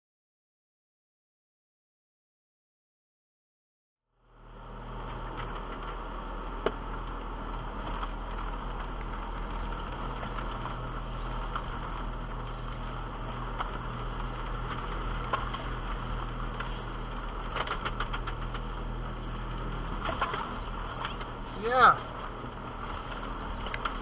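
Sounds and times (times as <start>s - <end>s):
vehicle engine rumble: 4.1s - 24.0s
vehicle body knocking and rattling: 19.8s - 24.0s.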